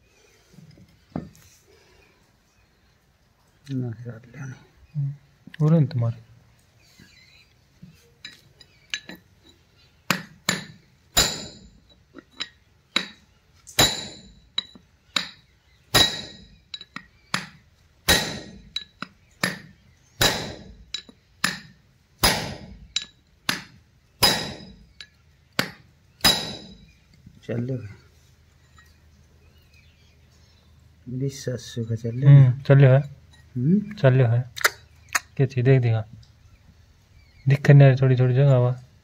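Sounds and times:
hammer striking steel chisel: 10.1s - 13.2s, 13.8s - 26.9s.

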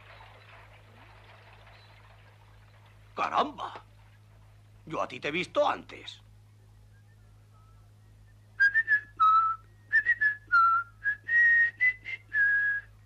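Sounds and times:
person whistling a tune: 6.9s - 13.0s.

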